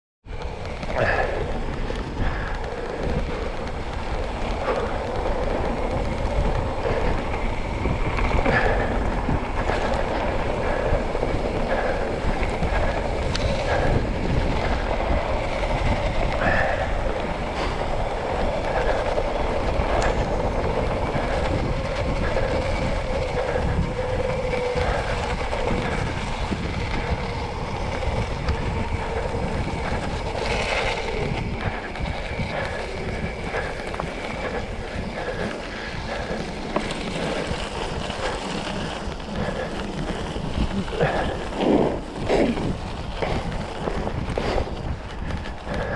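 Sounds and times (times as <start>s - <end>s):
bike rattling over bumps: 0.2s - 45.9s
bike tyres on dirt trail: 0.2s - 45.9s
wind buffeting microphone: 0.2s - 45.9s.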